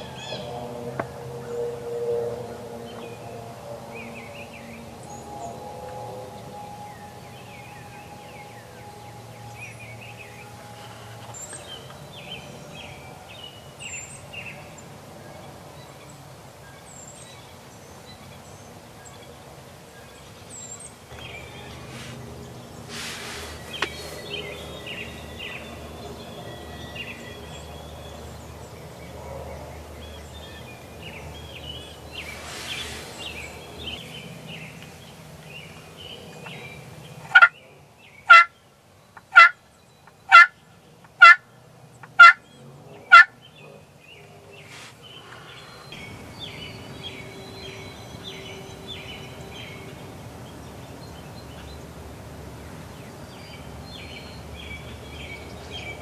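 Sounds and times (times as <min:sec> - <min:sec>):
faint bird calls: 0:21.1 - 0:25.8
turkey call notes: 0:37.3 - 0:37.5, 0:38.3 - 0:38.5, 0:39.3 - 0:39.5, 0:40.3 - 0:40.5, 0:41.2 - 0:41.4, 0:42.2 - 0:42.4.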